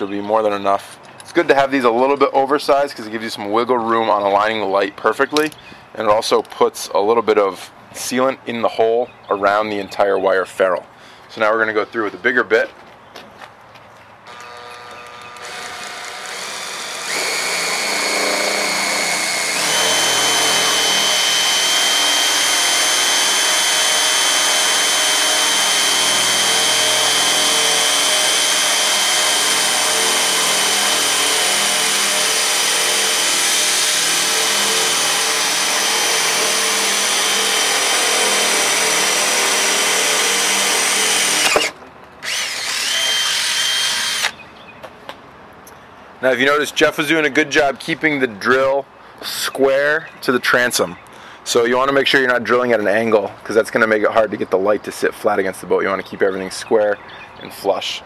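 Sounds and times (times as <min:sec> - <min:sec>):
cordless drill boring through fibreglass: 0:14.3 - 0:44.4.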